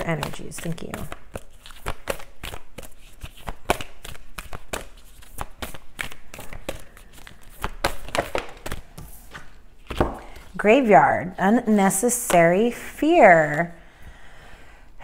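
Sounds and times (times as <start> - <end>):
cards being shuffled: 0.0 - 10.6.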